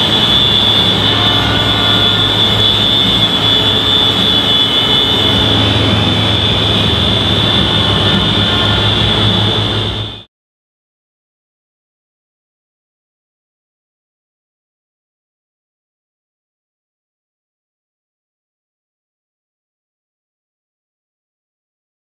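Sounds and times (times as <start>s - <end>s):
many tractor horns sounding: 0.0s - 10.3s.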